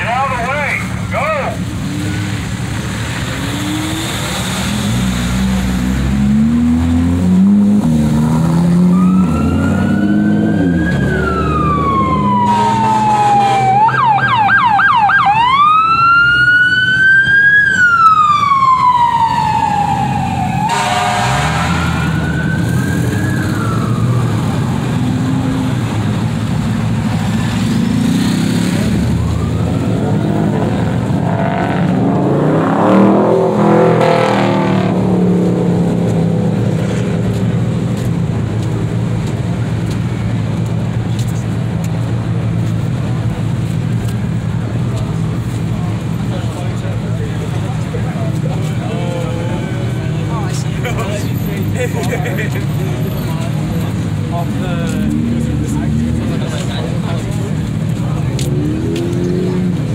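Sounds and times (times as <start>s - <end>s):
car engines rumbling: 0.0s - 59.9s
emergency siren wailing: 6.1s - 27.6s, 28.6s - 36.3s.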